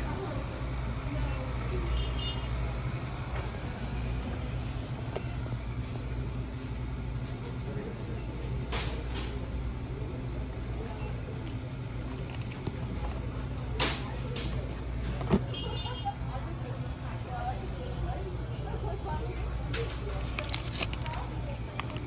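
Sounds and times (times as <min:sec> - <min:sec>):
faint distant voices: 0:00.0 - 0:22.0
card box rustling: 0:20.2 - 0:22.0.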